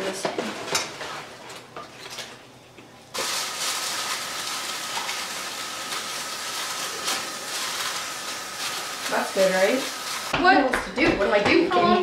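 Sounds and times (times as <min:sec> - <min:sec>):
chicken sizzling in frying pan: 0:03.1 - 0:10.3.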